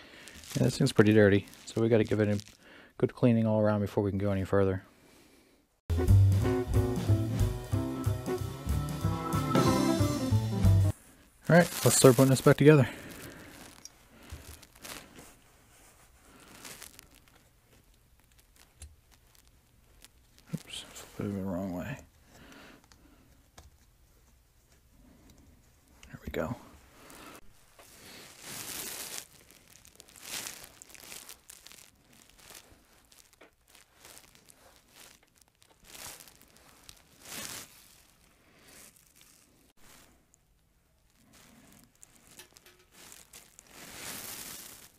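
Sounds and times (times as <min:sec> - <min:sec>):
paper towel rustling: 0:00.2 - 0:02.6, 0:11.5 - 0:17.2, 0:27.1 - 0:35.2, 0:35.8 - 0:40.2, 0:41.2 - 0:44.9.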